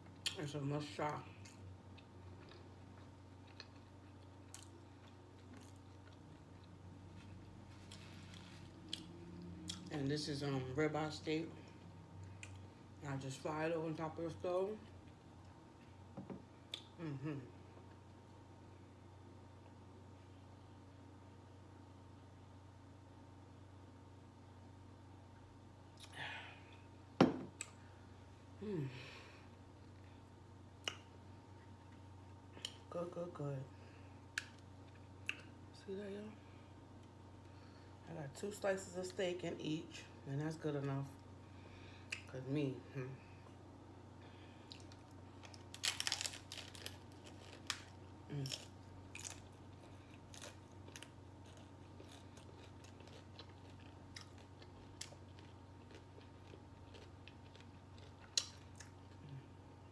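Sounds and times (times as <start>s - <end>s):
low steady hum: 0.0s - 59.9s
person chewing: 1.4s - 9.9s, 12.2s - 12.8s, 44.5s - 59.8s
person sighing mmm while eating: 17.0s - 17.6s, 28.6s - 29.5s.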